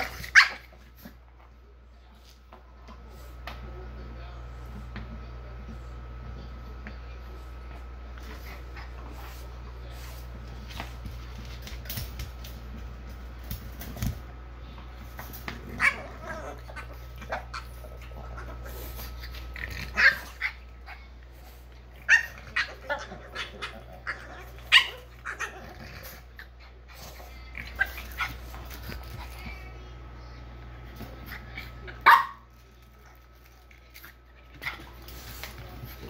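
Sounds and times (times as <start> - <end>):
dogs growling: 15.2 - 29.8.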